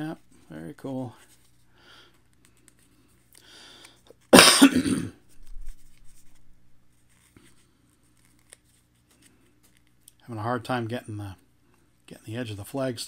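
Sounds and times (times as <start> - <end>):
man coughing: 4.4 - 5.2.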